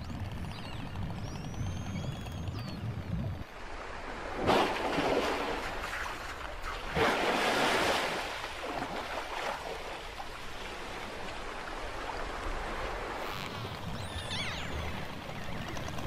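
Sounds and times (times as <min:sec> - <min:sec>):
water sloshing and lapping: 0:03.5 - 0:16.0
splashing water and spray: 0:04.2 - 0:11.3.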